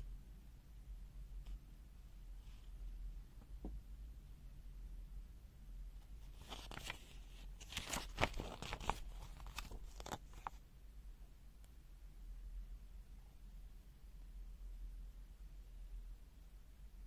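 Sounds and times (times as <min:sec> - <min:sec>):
faint steady hum: 0:00.0 - 0:17.0
packaging crinkling and clicking: 0:07.6 - 0:10.6.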